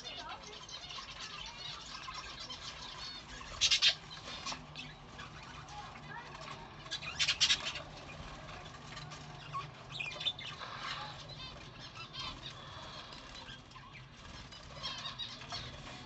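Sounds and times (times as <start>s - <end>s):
budgerigars chirping: 0.0s - 16.0s
wings fluttering: 0.2s - 16.0s.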